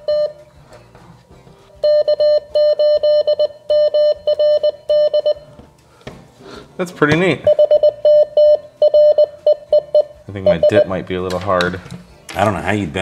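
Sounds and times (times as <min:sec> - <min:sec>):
morse code beeps: 0:00.0 - 0:00.4, 0:01.8 - 0:05.5, 0:07.5 - 0:11.0.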